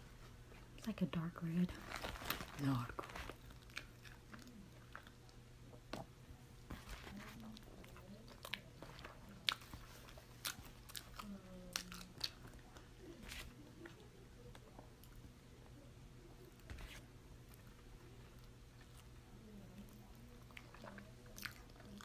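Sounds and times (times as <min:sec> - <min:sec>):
person chewing food: 0:03.1 - 0:06.1, 0:06.7 - 0:15.2, 0:19.8 - 0:22.0.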